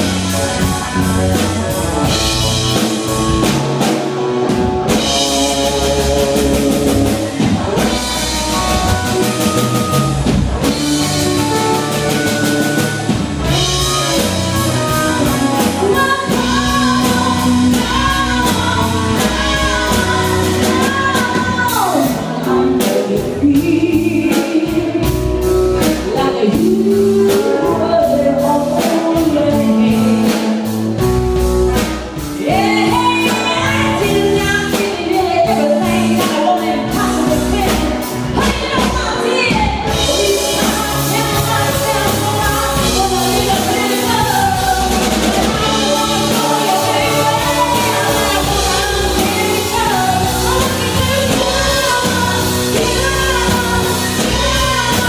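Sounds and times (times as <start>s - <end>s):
bass guitar: 0.0s - 55.0s
drum kit: 0.0s - 55.0s
electric guitar: 0.0s - 55.0s
keyboard: 0.0s - 55.0s
woman singing: 10.7s - 31.1s, 32.2s - 55.0s.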